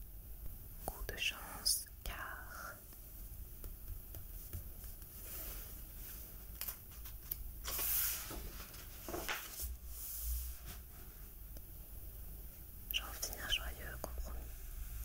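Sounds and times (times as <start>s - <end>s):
paper rustling: 4.5s - 9.7s
page turning swish: 6.7s - 9.7s.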